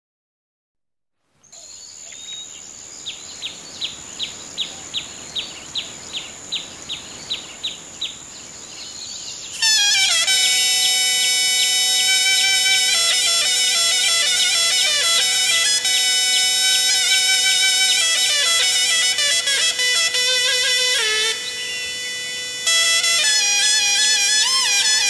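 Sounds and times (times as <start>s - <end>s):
bird chirping: 1.4s - 25.0s
steady hiss with high tone: 1.5s - 24.8s
reedy wind instrument: 9.5s - 25.0s
steady drone: 9.7s - 25.0s.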